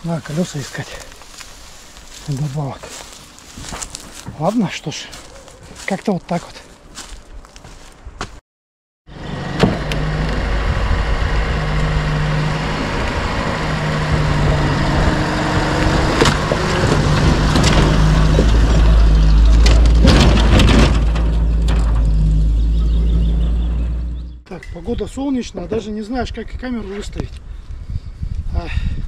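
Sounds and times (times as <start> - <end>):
vehicle engine and road rumble: 0.0 - 8.4, 9.1 - 29.0
knocks and rattles over bumps: 14.0 - 22.6.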